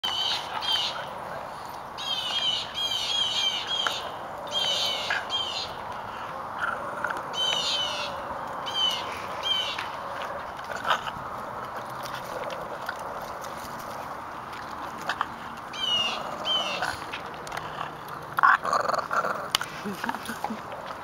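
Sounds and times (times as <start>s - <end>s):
songbird singing: 0.0s - 6.0s, 6.6s - 10.2s, 15.7s - 17.0s.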